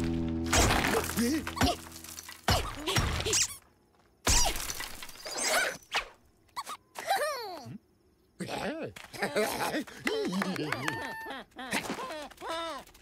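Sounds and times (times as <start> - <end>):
cartoon crashes of bricks: 0.5 - 3.6, 4.2 - 5.8.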